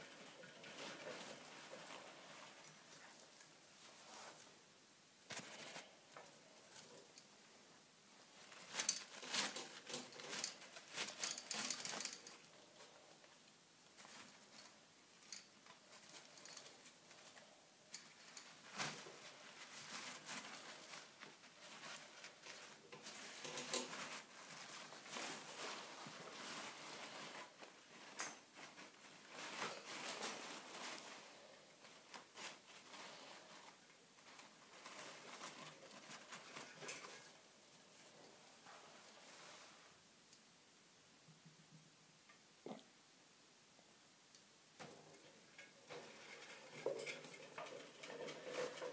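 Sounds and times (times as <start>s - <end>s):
rodent crinkling paper towels: 8.3s - 13.0s, 13.9s - 38.0s.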